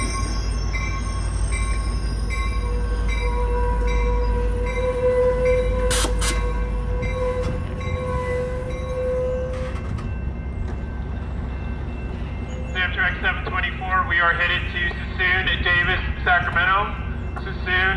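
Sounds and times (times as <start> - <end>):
bell-like tone: 0.0 - 5.8
train brake squeal: 0.0 - 10.0
low rumble of train: 0.0 - 17.9.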